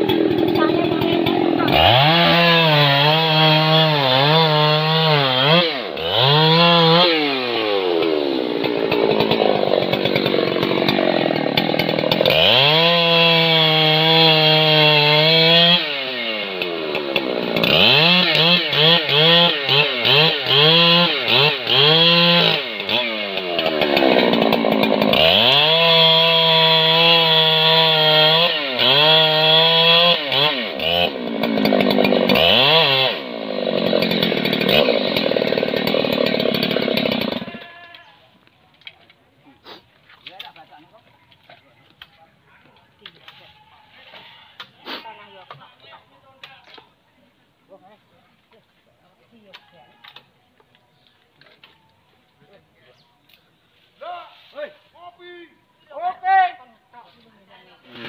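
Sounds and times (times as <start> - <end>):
chainsaw cutting wood: 0.0 - 38.1, 57.8 - 58.0.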